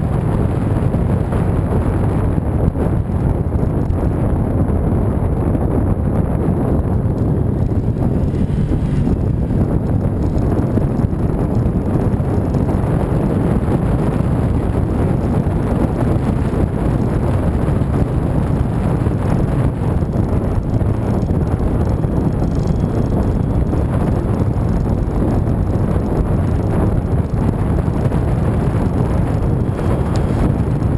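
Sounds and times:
motorcycle engine running: 0:00.0 - 0:30.9
wind rushing over microphone: 0:00.0 - 0:30.9.

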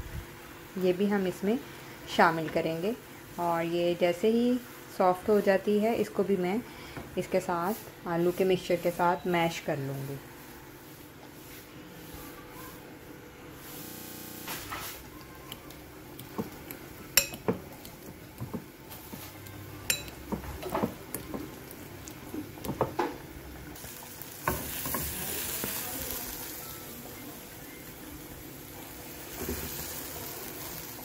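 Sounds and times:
mash sizzling in hot pan: 0:13.5 - 0:31.0
fork clinking against glass bowl: 0:17.2 - 0:17.6, 0:19.9 - 0:20.2.

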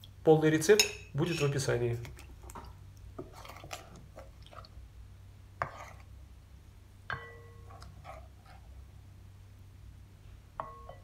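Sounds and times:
spoon stirring wet mixture: 0:00.0 - 0:09.1
spoon knocking ceramic bowl: 0:07.1 - 0:07.6, 0:10.6 - 0:11.0.

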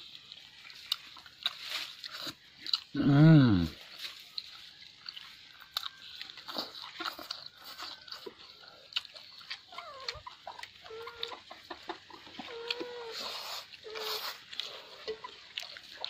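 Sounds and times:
food crunching: 0:00.0 - 0:16.0
mouth smacking: 0:05.8 - 0:16.0.

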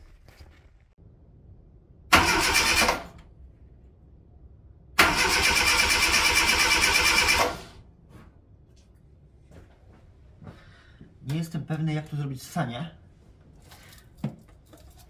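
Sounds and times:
starter motor cranking engine: 0:02.2 - 0:03.2, 0:05.0 - 0:07.7.

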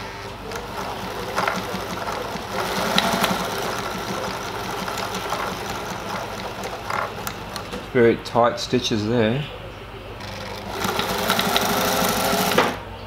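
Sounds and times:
sewing machine clattering: 0:00.4 - 0:08.0, 0:10.2 - 0:12.8.

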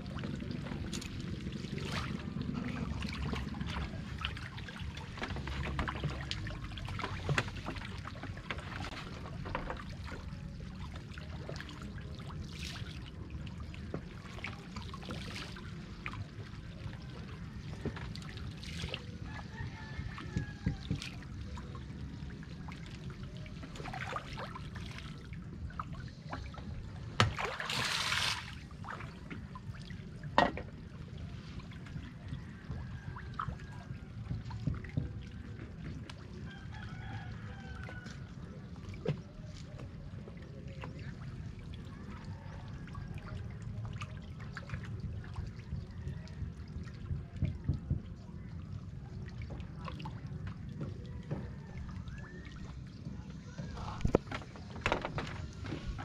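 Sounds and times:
water trickling and sloshing: 0:00.0 - 0:56.0
steady low rumble: 0:43.4 - 0:51.1.

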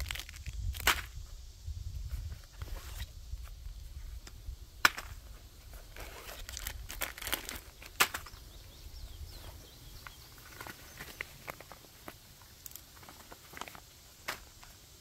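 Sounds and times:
plastic wrappers crinkling: 0:00.0 - 0:00.9, 0:05.9 - 0:08.3
canvas bag rustling: 0:05.9 - 0:08.0.

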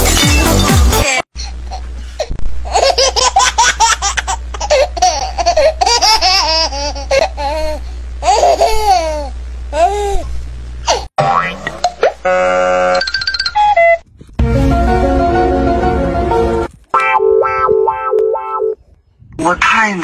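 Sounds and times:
steady low hum: 0:01.4 - 0:12.9.

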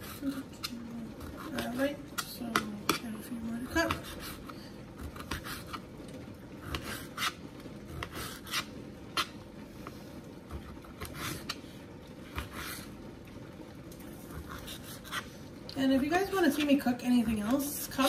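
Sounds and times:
knife slicing tomatoes on a plate: 0:00.0 - 0:05.8, 0:06.7 - 0:09.4.

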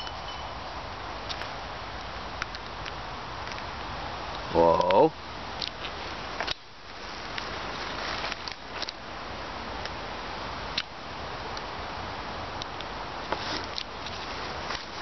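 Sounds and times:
steady hiss: 0:00.0 - 0:15.0
twigs and dry leaves crackling: 0:05.6 - 0:09.0, 0:13.2 - 0:15.0.

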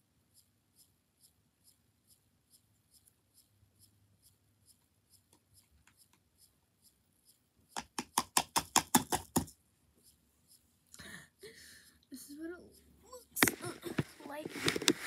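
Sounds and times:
faint high ticking: 0:00.3 - 0:08.2.

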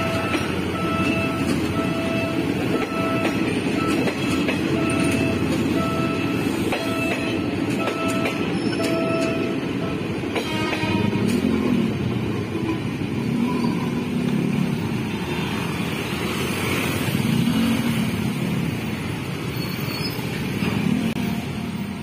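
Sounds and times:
traffic din: 0:00.0 - 0:22.0
motorcycles and cars moving off: 0:13.1 - 0:21.8.

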